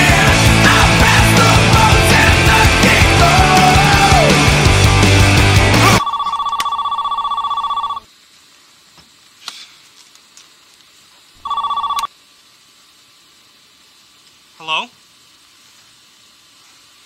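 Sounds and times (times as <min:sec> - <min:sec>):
rock music: 0:00.0 - 0:06.0
telephone ringing with warbling trill: 0:05.8 - 0:08.1, 0:11.4 - 0:12.1.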